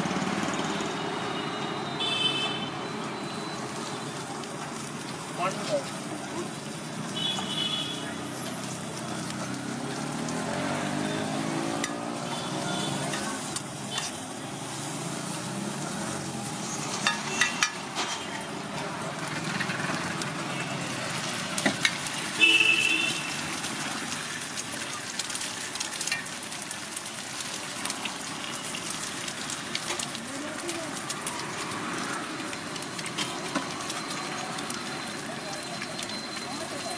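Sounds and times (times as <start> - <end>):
food sizzling on a griddle: 0.0 - 36.9
clicks and taps on griddle: 17.0 - 18.2.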